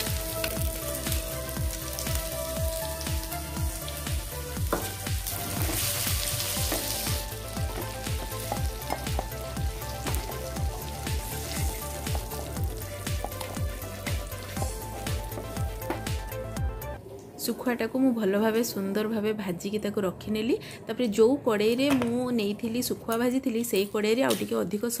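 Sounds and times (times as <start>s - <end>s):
fish sizzling in oil: 0.0s - 16.4s.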